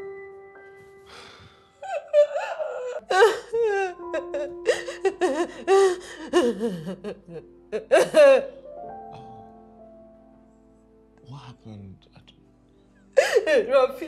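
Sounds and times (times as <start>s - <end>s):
held background music notes: 0.0s - 14.0s.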